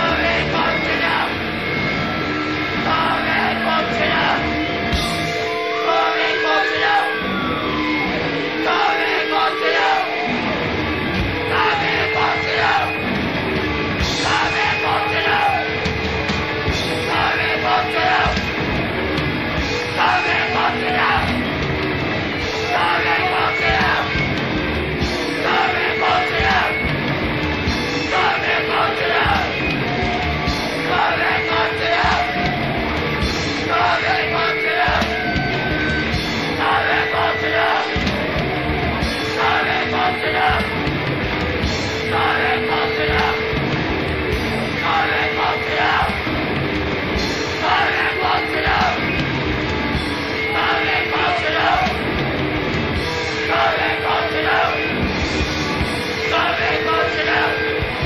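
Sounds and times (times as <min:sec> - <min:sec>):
hardcore punk band playing: 0:00.0 - 0:58.0
yelled vocals: 0:00.0 - 0:58.0
high guitar squeal: 0:00.2 - 0:40.8, 0:41.4 - 0:58.0.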